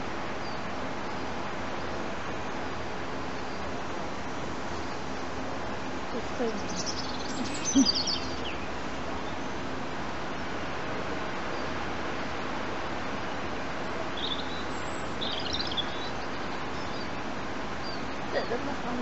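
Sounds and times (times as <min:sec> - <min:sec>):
outdoor background hiss: 0:00.0 - 0:19.0
high bird chirps: 0:06.6 - 0:08.7, 0:14.2 - 0:17.1.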